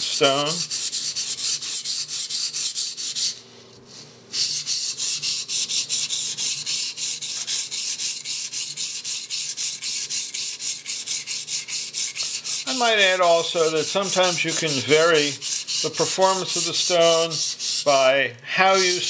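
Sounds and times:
knife scraping on a wet whetstone: 4.4s - 18.0s.

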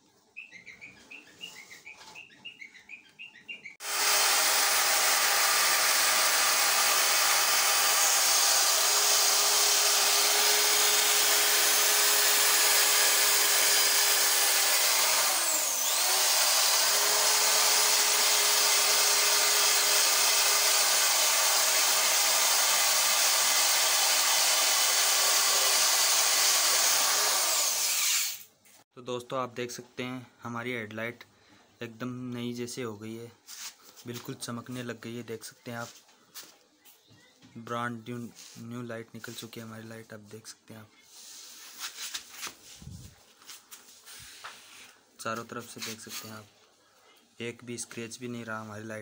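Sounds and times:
electric drill motor running: 3.8s - 28.4s.

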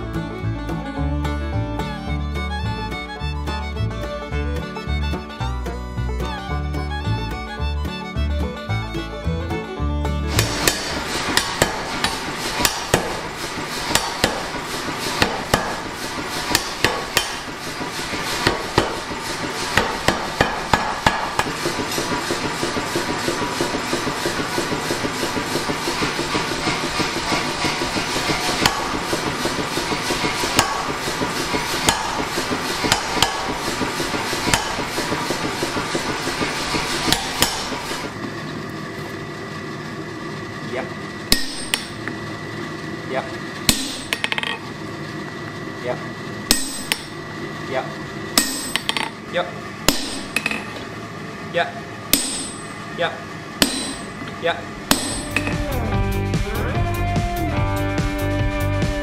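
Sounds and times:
hand hammer striking anvil: 10.3s - 38.1s, 41.3s - 42.0s, 43.7s - 44.6s, 46.5s - 47.2s, 48.4s - 49.2s, 49.9s - 50.8s, 52.1s - 52.8s, 53.6s - 54.3s, 54.9s - 55.8s
power hammer blows on metal: 10.3s - 38.2s, 41.3s - 42.1s, 43.6s - 44.6s, 46.5s - 47.3s, 48.4s - 49.1s, 49.9s - 50.8s, 52.1s - 52.9s, 53.6s - 54.3s, 54.9s - 55.8s.

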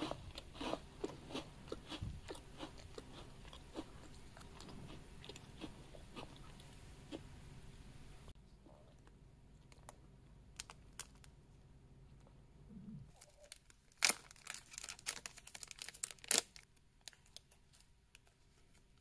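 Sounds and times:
plastic packet crinkling: 13.1s - 18.3s
plastic packet ripping: 13.2s - 17.4s.

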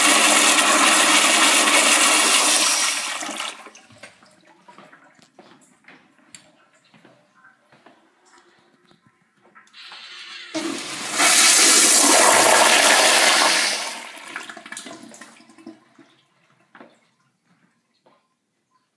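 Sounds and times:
toilet flushing: 0.0s - 4.7s, 9.8s - 16.7s.

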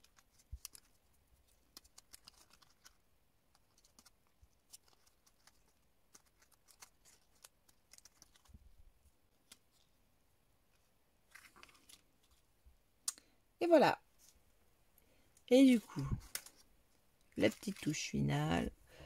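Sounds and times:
paper crinkling: 0.0s - 12.6s, 15.8s - 16.7s, 17.3s - 18.2s.

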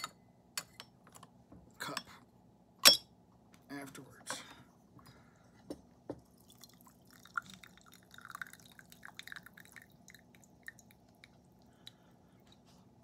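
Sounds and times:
tea dripping into a cup: 6.1s - 12.6s.

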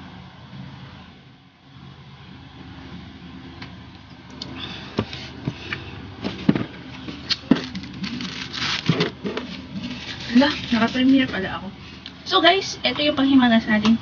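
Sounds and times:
paper tissue rustling: 7.0s - 11.4s.

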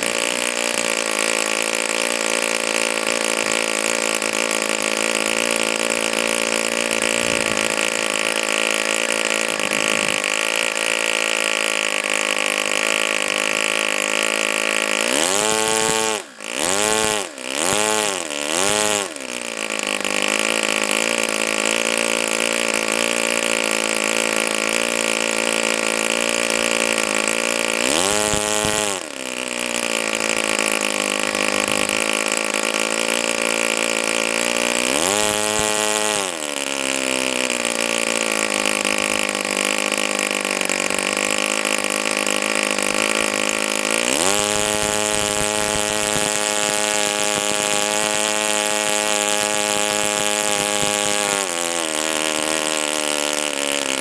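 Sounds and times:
model engine running at high speed: 0.0s - 54.0s.

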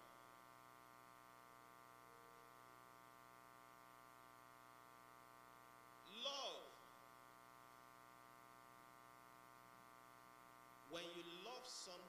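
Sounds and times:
faint mains hum with hiss: 0.0s - 12.0s.

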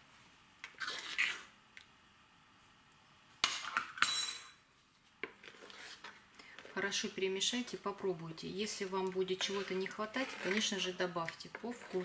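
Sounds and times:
metal spoon scraping in a pot: 5.4s - 7.1s, 9.1s - 12.0s.

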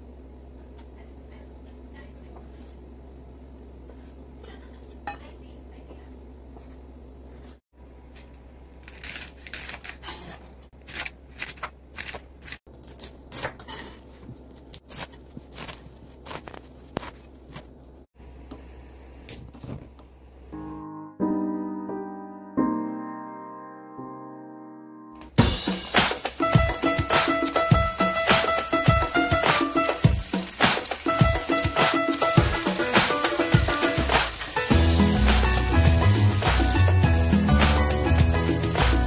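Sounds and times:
music: 20.6s - 39.0s.

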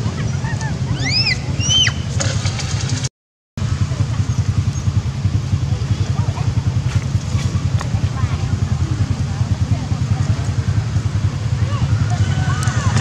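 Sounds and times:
low rumble with pulsing flutter: 0.0s - 13.0s
short high rising and falling calls: 0.2s - 2.1s.

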